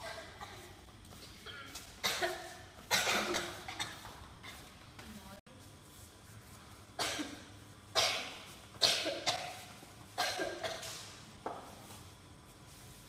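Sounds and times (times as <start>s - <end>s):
person coughing: 1.4s - 4.1s, 7.0s - 11.0s.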